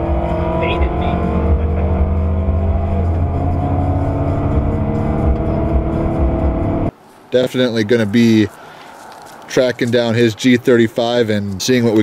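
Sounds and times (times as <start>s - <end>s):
car engine running at road speed: 0.0s - 6.9s.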